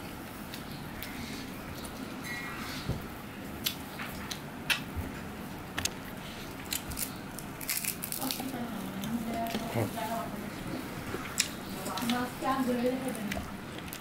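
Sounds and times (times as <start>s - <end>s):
puffed rice crunching: 6.5s - 8.6s.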